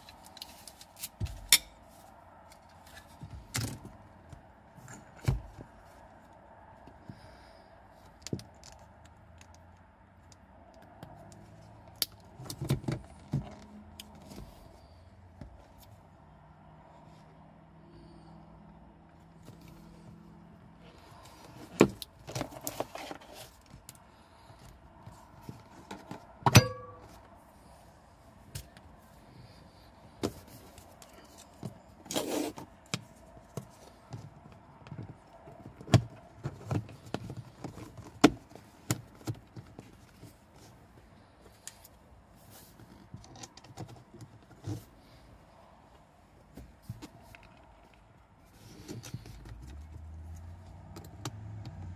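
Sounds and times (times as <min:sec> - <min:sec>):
knock with metallic ring: 0:26.5 - 0:27.1.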